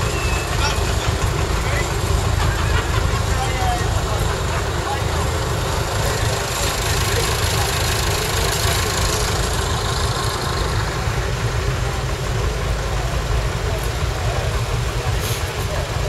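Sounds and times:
tractor engines idling: 0.0s - 16.0s.

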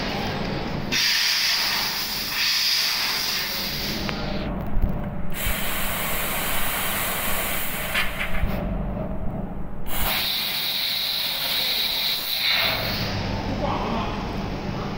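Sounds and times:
gas hissing from laser cutter: 0.9s - 4.5s, 5.3s - 8.3s, 9.8s - 13.3s
low hum: 8.3s - 9.9s.

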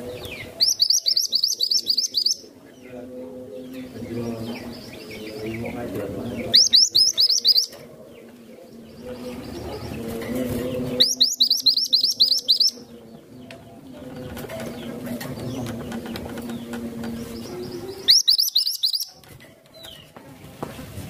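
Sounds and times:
bird singing whistled trills: 0.2s - 2.5s, 6.4s - 7.8s, 10.9s - 12.9s, 17.4s - 19.2s.

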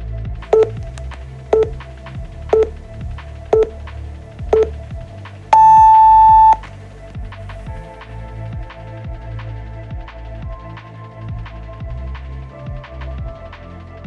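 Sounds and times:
electronic background music: 0.0s - 14.0s
timer countdown beeps: 0.5s - 0.8s, 1.6s - 1.8s, 2.5s - 2.7s, 3.5s - 3.7s, 4.5s - 4.8s, 5.6s - 6.6s.

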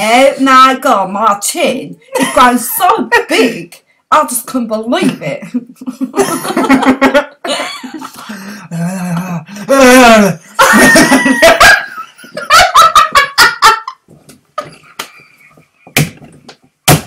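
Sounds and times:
man and woman laughing: 5.6s - 8.3s, 9.7s - 14.0s.

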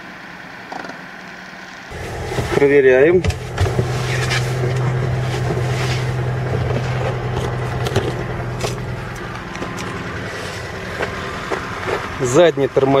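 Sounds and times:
car engine idling: 0.0s - 13.0s
knocks and rustling: 1.9s - 12.3s.

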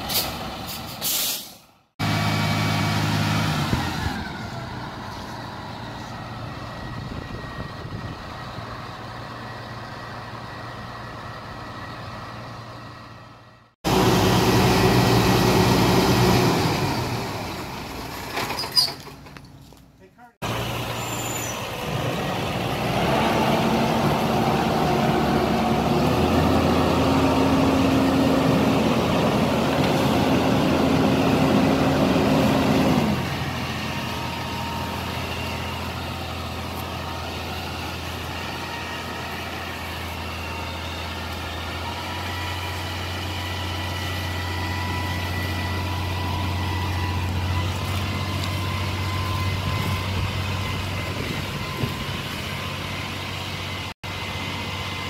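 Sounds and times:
truck engine running: 2.0s - 18.4s, 19.0s - 55.0s
higher-pitched engine running: 20.4s - 55.0s.

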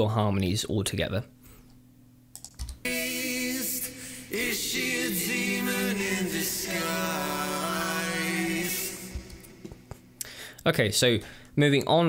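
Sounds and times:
men singing in close harmony: 2.9s - 9.7s.

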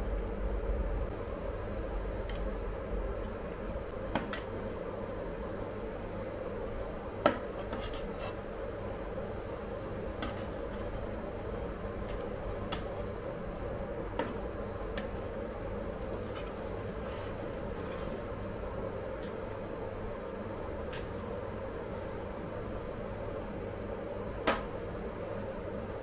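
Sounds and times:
machinery hum: 0.0s - 26.0s
metal spatulas scraping a cold plate: 7.6s - 8.4s.

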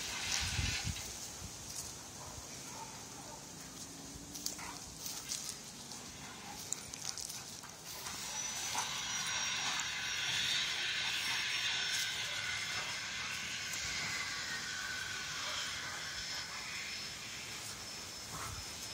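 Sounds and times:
steady hiss with high tone: 0.0s - 2.1s, 4.0s - 18.9s
dogs play-fighting: 1.7s - 14.3s, 15.4s - 16.9s, 18.3s - 18.9s.

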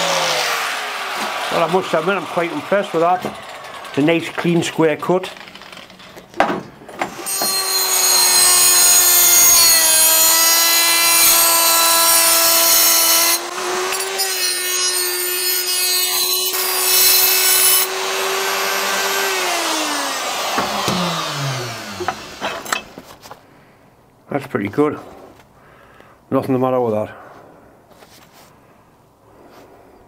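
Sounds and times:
rotary grinder whining: 0.0s - 4.5s, 7.1s - 14.9s, 16.1s - 22.8s.

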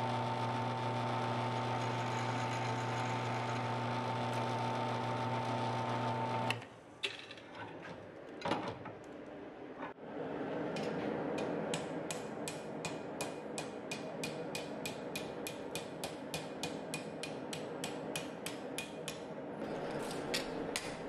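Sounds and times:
hammer striking hot steel on anvil: 11.4s - 19.3s.

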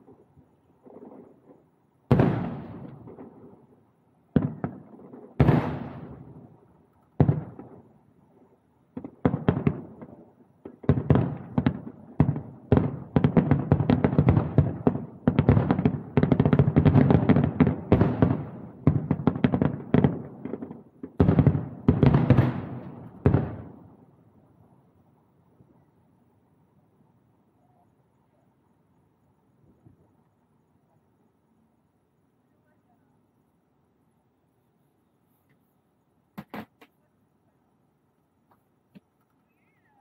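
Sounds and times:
distant firework booms: 0.0s - 3.7s, 4.3s - 6.6s, 7.2s - 7.9s, 8.9s - 24.0s.

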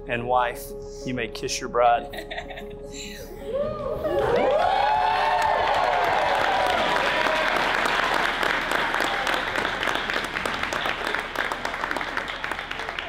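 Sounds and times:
people cheering: 3.5s - 13.0s
crowd applauding: 3.8s - 13.0s.

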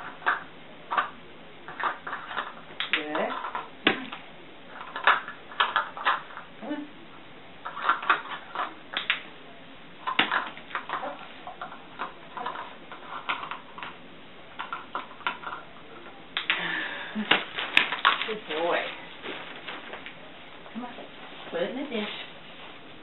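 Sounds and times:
plastic cups clattering: 0.0s - 6.5s, 7.6s - 9.2s, 10.0s - 15.7s, 16.4s - 20.2s.

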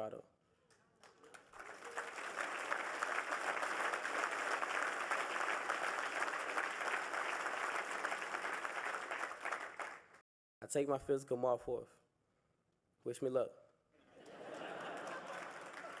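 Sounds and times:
audience applauding: 1.0s - 10.2s, 14.3s - 16.0s.

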